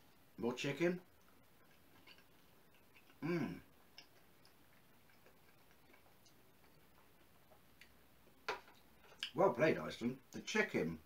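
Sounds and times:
person chewing food: 1.1s - 9.4s
short voiced hum: 3.2s - 3.6s.

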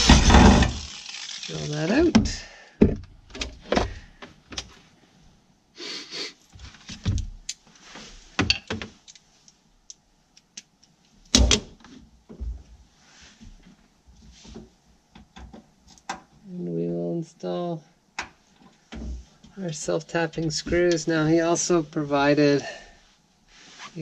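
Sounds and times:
loud thump: 0.0s - 0.8s.

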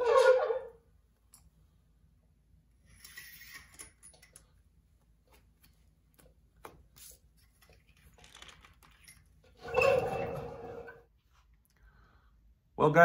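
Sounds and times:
clicks and rustles of wires: 3.0s - 9.6s.

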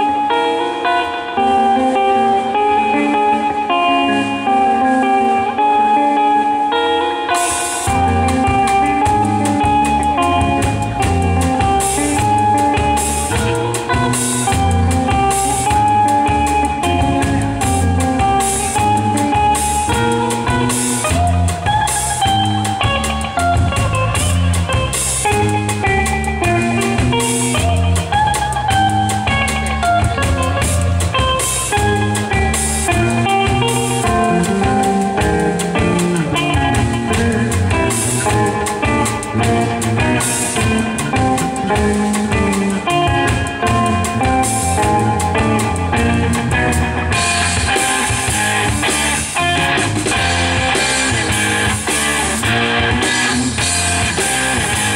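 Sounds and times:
electric bass: 0.0s - 54.9s
electric guitar lead melody: 0.0s - 54.9s
drum kit with cymbal hits: 7.2s - 54.9s.

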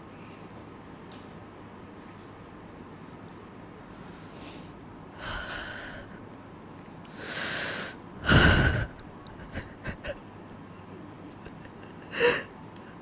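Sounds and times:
man breathing heavily: 4.0s - 6.2s, 7.2s - 10.2s, 12.1s - 13.0s.

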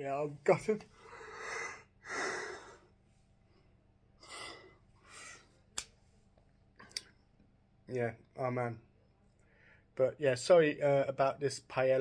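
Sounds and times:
man breathing heavily: 0.9s - 3.0s.

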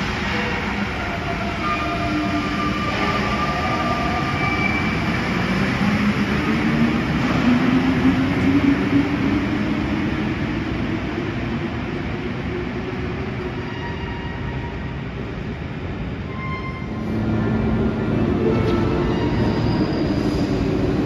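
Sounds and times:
train continuous rumble: 0.0s - 21.0s.

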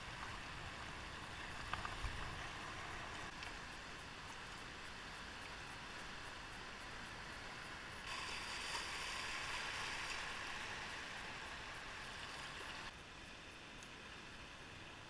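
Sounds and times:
river water rushing over rapids: 2.2s - 13.4s.

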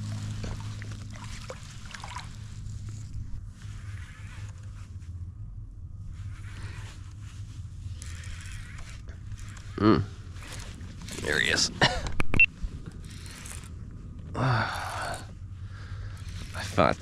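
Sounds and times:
water lapping against hull: 0.0s - 3.4s
steady low hum: 0.0s - 17.0s.

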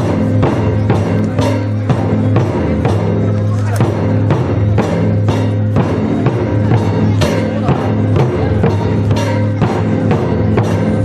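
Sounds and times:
taiko drums struck in rhythm: 0.0s - 11.0s.

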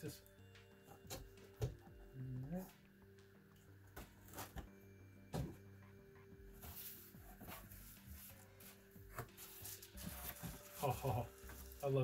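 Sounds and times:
faint background music: 0.0s - 12.0s
cardboard rustle: 6.6s - 12.0s.

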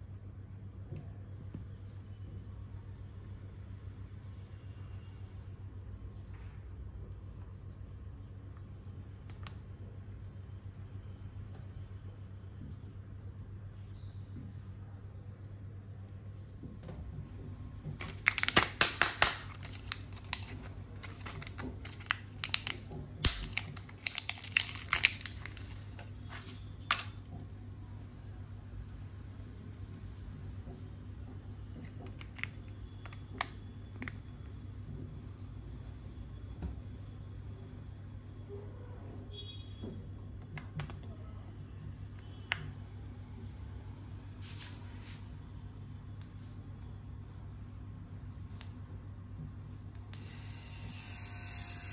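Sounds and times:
packaging crinkling: 18.0s - 27.2s.

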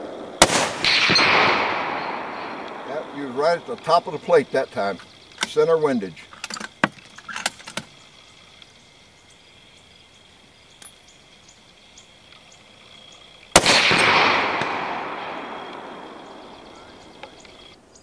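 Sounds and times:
rifle shot with echo: 0.1s - 3.8s, 13.6s - 17.6s.

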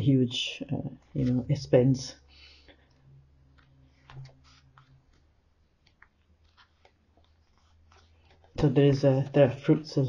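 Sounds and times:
book pages turning: 0.9s - 1.8s, 2.8s - 9.4s.

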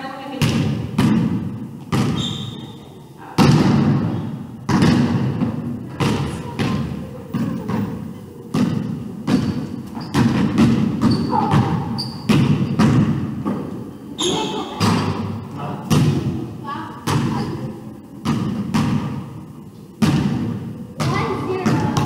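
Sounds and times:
basketball bouncing on wooden floor: 0.4s - 2.7s, 3.4s - 13.7s, 17.0s - 17.6s, 20.0s - 22.0s.

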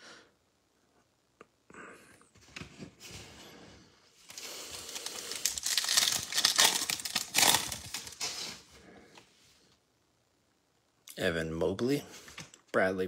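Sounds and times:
foil wrapper tearing and crinkling: 4.3s - 8.4s.

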